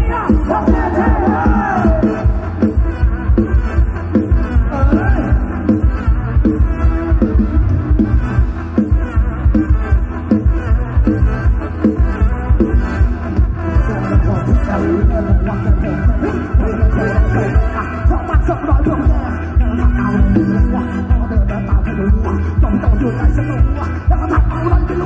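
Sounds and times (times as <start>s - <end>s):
person singing: 0.0s - 2.8s, 4.5s - 5.9s, 13.7s - 25.0s
band music through speakers: 0.0s - 25.0s
fast heavy bass drum beat: 0.0s - 25.0s.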